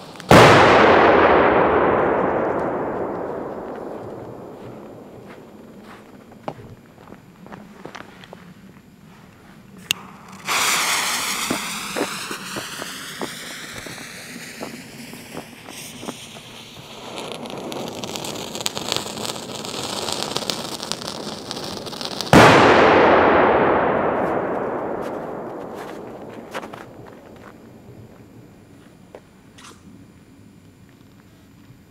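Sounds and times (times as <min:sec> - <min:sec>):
loud firecracker bang: 0:00.3 - 0:06.3, 0:10.0 - 0:20.7, 0:21.8 - 0:28.1
footsteps: 0:03.2 - 0:16.9, 0:24.2 - 0:29.2
fuse hissing: 0:10.0 - 0:16.9.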